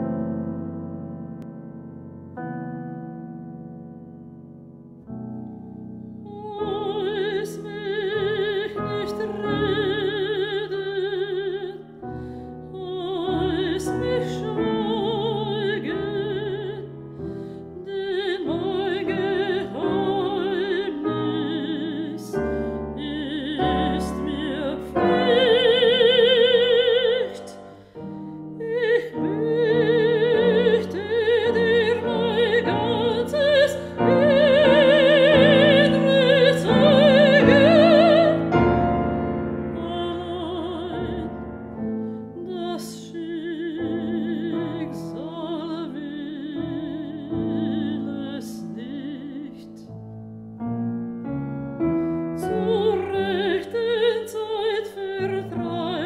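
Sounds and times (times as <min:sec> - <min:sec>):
piano accompaniment: 0:00.0 - 0:56.0
woman singing with vibrato: 0:06.3 - 0:12.0, 0:12.7 - 0:16.9, 0:17.8 - 0:27.9, 0:28.6 - 0:41.6, 0:42.4 - 0:49.8, 0:52.4 - 0:56.0.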